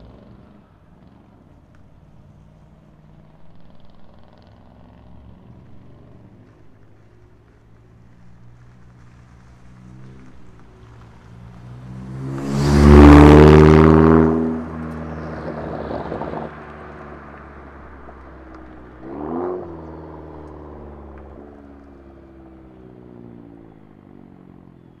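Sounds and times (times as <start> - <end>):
loud car driving past: 8.2 - 25.0.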